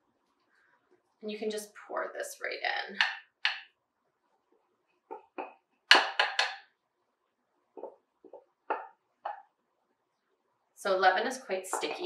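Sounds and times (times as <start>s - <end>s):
wooden spoon knocking a bowl: 3.0s - 3.7s, 5.1s - 6.8s, 7.8s - 9.5s, 11.7s - 12.0s.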